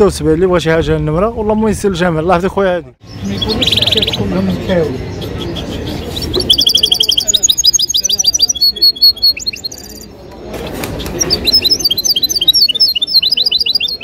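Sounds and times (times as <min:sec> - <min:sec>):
goldfinches twittering: 0:03.0 - 0:08.6.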